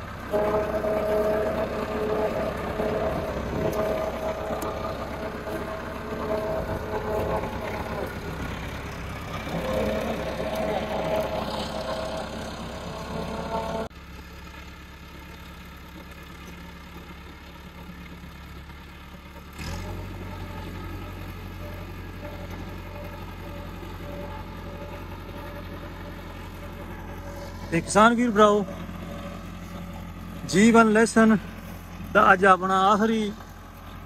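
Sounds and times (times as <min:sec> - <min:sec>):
steady low hum: 0:00.0 - 0:13.9
tractor diesel engine running: 0:00.0 - 0:34.0.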